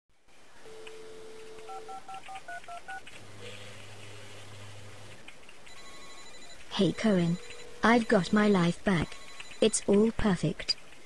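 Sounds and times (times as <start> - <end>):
low steady buzz: 0.2 - 9.6
touch-tone keypad beeps: 0.7 - 3.0, 5.7 - 9.9
telephone dial tone: 0.7 - 4.3, 5.7 - 8.3, 9.0 - 9.7.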